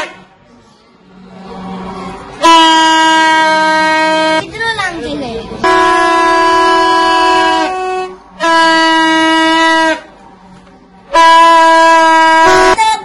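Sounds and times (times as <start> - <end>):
plastic toy horn blasts: 5.6 - 10.1, 11.1 - 12.9.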